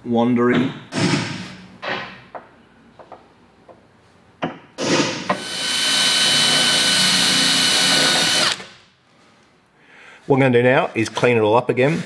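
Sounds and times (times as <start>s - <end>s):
cordless drill whining: 5.3s - 8.8s.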